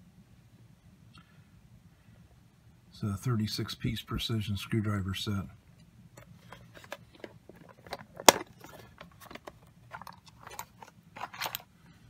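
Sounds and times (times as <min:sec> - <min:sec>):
plastic case clicks and rattling: 0:06.2 - 0:11.7
plastic case snapping: 0:06.5 - 0:11.6.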